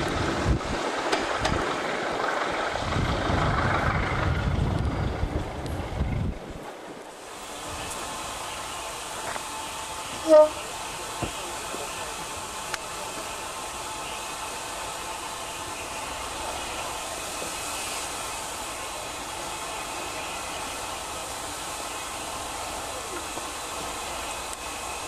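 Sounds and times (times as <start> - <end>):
distant train rushing: 0.0 - 25.0.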